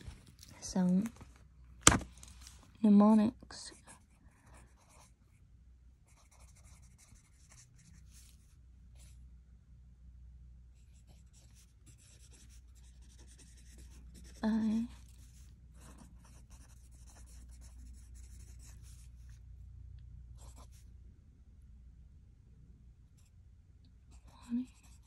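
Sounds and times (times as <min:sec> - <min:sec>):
pen scratching on paper: 0:03.7 - 0:05.1, 0:06.1 - 0:08.4, 0:10.8 - 0:19.4, 0:24.1 - 0:25.0.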